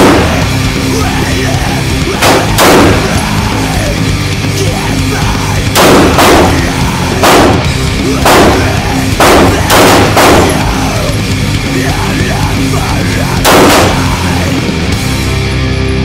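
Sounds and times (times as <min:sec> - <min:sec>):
pistol shots: 0:00.0 - 0:00.5, 0:02.2 - 0:03.3, 0:05.8 - 0:11.1, 0:13.4 - 0:14.3
heavy metal music: 0:00.0 - 0:16.0.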